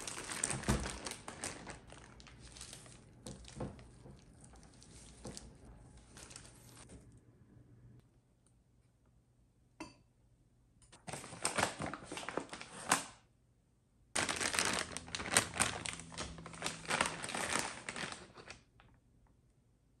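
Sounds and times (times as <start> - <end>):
plastic bag crinkling: 0.0 - 6.9, 11.0 - 13.2, 14.2 - 18.9.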